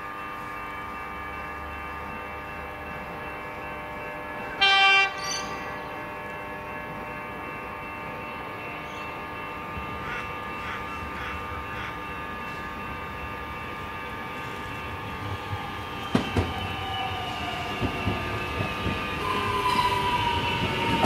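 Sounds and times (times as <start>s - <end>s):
train running noise: 0.0s - 21.0s
train horn blast: 4.6s - 6.0s.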